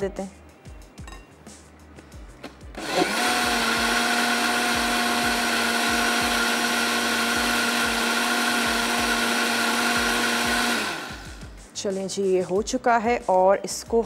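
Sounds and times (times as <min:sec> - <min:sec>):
electric blender motor running: 0:02.8 - 0:11.4.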